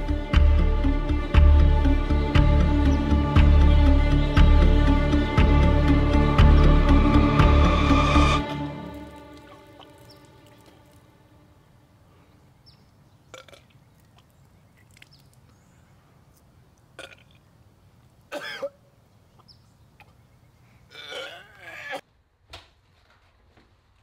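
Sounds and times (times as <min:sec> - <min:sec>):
man gagging and dry-heaving: 0:20.9 - 0:22.0.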